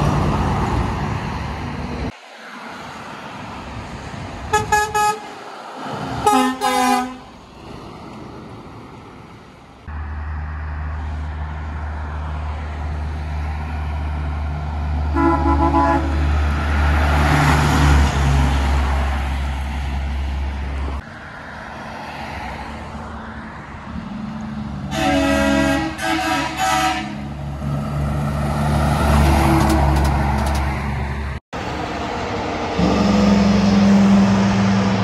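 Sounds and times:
truck engine drone: 0.0s - 35.0s
tyre and road rush: 0.0s - 35.0s
truck air horn: 4.5s - 5.4s, 6.2s - 7.3s, 15.1s - 16.3s, 24.9s - 27.4s.

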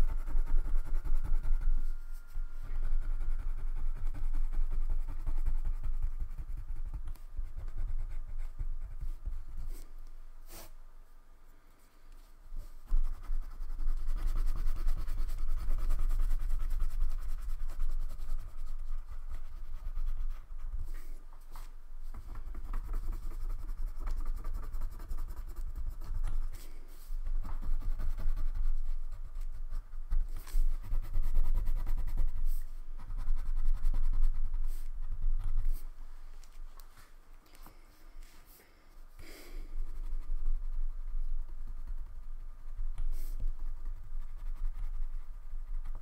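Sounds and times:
crayon scribbling on paper: 0.0s - 10.7s, 12.8s - 35.9s.

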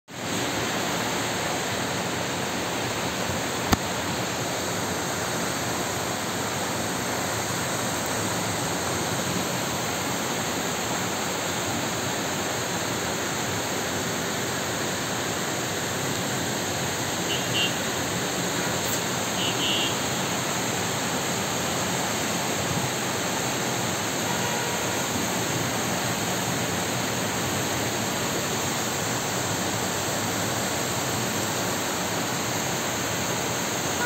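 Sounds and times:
floodwater rushing down street: 0.1s - 34.0s.

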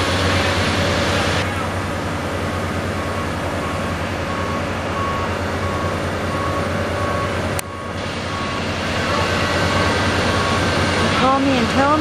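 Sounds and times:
excavator diesel engine running: 0.0s - 12.0s
backup alarm beeping: 2.9s - 12.0s.

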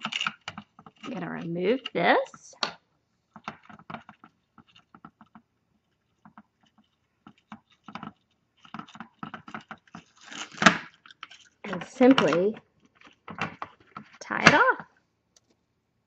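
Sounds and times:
ribbon rustling and crinkling: 3.3s - 14.2s.

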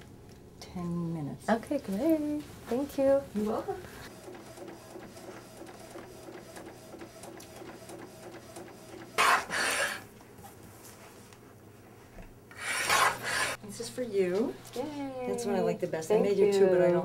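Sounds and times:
photo printer whirring and ticking: 4.1s - 10.0s.

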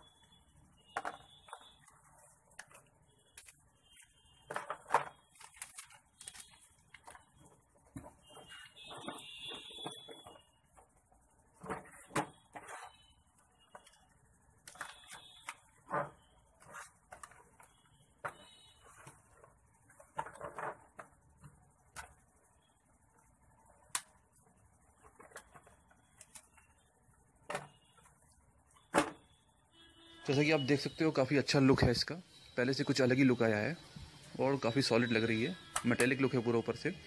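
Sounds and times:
packaging rustles and clicks: 1.0s - 11.0s.

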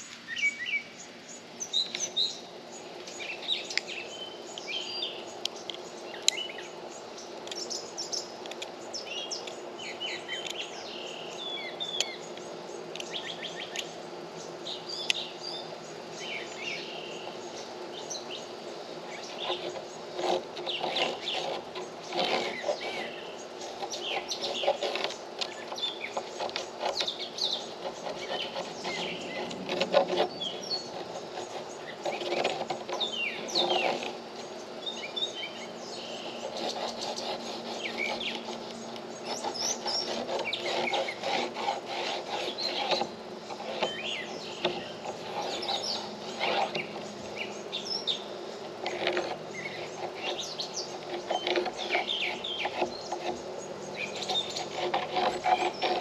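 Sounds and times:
birds chirping: 0.0s - 56.0s
pencil scratching on plywood: 19.2s - 34.5s, 36.3s - 47.2s, 48.8s - 56.0s.

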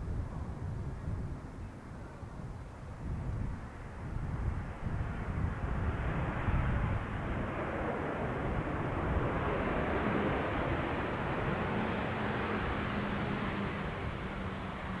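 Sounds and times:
jet engines rushing and rumbling: 3.2s - 15.0s.

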